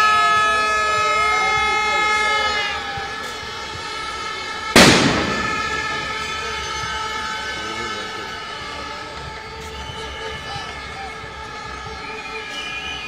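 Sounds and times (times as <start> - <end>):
crowd blowing horns: 0.0 - 13.0
loud firecracker bang: 4.6 - 7.2.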